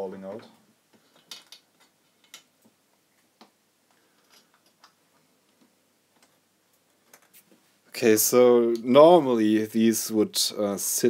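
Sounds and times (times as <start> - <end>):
small metal parts clicking: 1.0 - 2.5.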